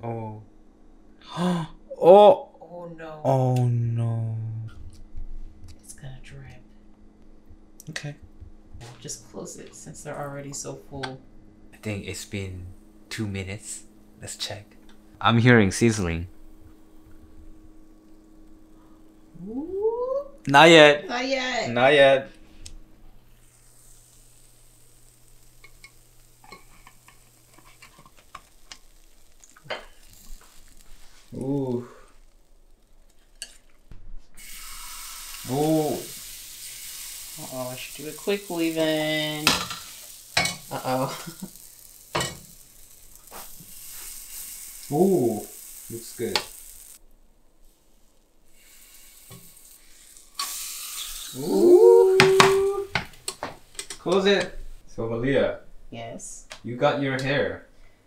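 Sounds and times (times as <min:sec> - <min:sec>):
batter sizzling faintly: 0:11.7 - 0:54.8
drawn-out voice: 0:51.3 - 0:52.9.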